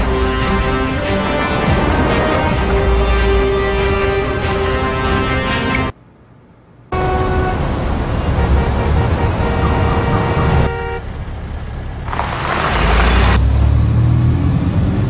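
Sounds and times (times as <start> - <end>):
loud rushing whoosh: 0.0 - 4.4
heavy low rumble: 0.0 - 5.0
street traffic rumble: 0.0 - 15.0
car horn tones: 6.9 - 7.7, 8.3 - 11.1.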